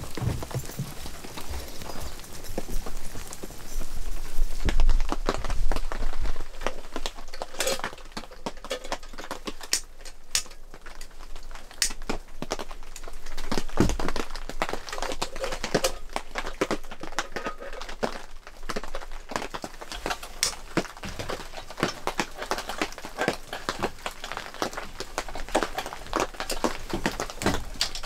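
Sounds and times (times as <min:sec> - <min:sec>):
lantern clicks and metal rattles: 0:06.6 - 0:12.2, 0:13.6 - 0:28.0.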